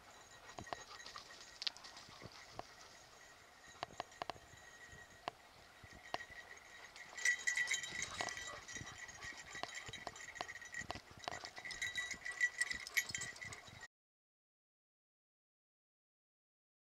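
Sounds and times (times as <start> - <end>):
clicks and scuffs of paws: 0.5 - 3.0.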